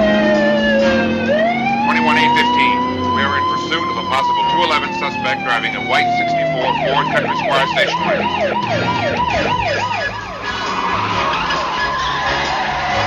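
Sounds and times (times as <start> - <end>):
faint wavering siren: 0.0 - 12.3
siren fast yelp: 0.0 - 13.0.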